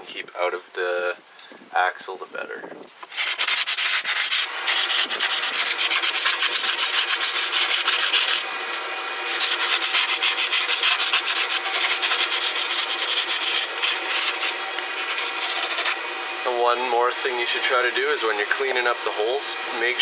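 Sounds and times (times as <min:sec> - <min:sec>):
sandpaper scrubbing metal: 0:03.0 - 0:16.0.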